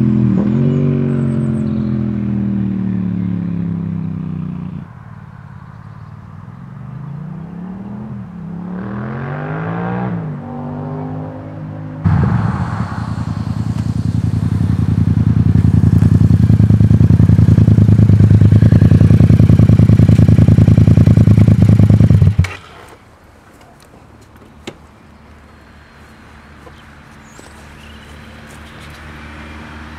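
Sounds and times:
motorcycle engine idling: 13.1 - 22.4.

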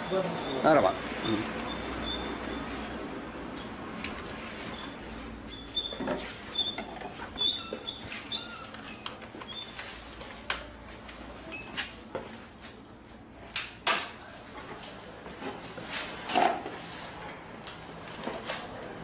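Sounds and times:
short high squeaks: 0.0 - 2.7, 4.2 - 9.8.

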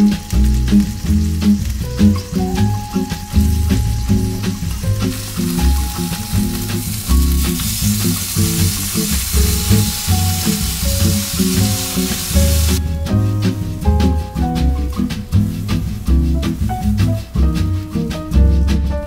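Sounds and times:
chicken sizzling on grill pan: 0.0 - 12.8
background music with bass beat: 0.0 - 19.0.

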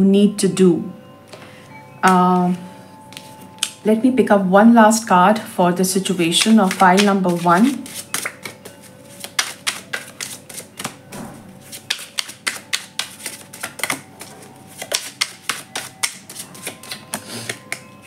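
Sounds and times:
cards being shuffled: 6.4 - 11.0, 11.6 - 17.8.

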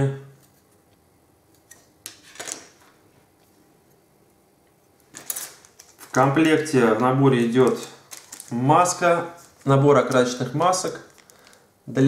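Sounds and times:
crinkly rustle: 7.6 - 11.6.

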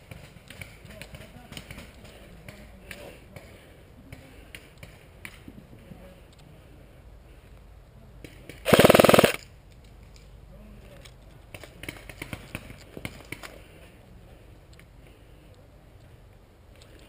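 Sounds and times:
airsoft rifle full-auto burst: 8.7 - 9.4.

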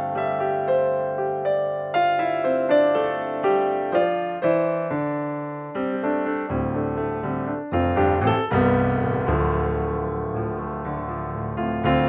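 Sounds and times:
piano music: 0.0 - 12.0.

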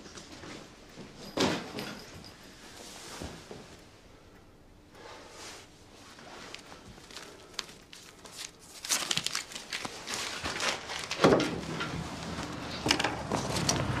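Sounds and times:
clothing and paper rustling: 5.9 - 14.0.

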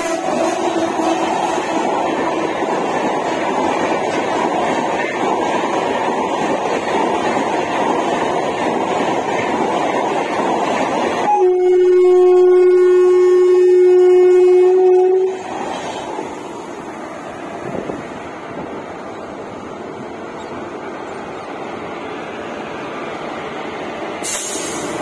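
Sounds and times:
locomotive horn blast: 0.0 - 1.8, 11.2 - 15.4
train wheels on rails: 0.0 - 11.6, 14.4 - 25.0
train rumble: 0.0 - 25.0.

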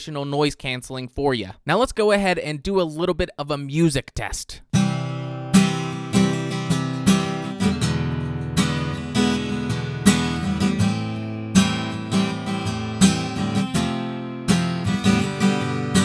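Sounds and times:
acoustic guitar strumming: 4.7 - 16.0.

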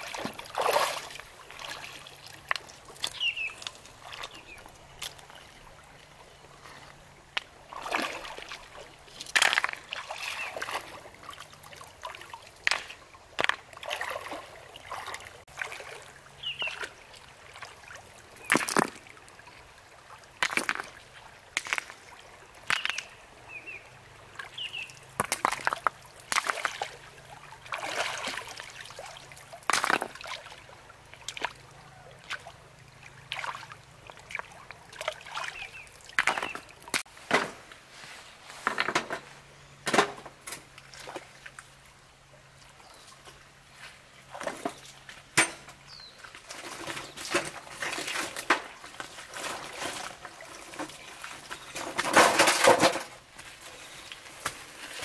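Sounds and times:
water sloshing and splashing: 0.0 - 37.7, 39.9 - 41.9, 42.5 - 55.0.

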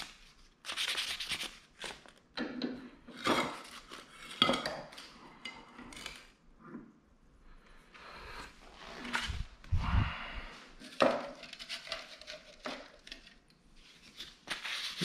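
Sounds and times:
sandpaper rubbing: 0.7 - 1.6, 14.5 - 15.0.

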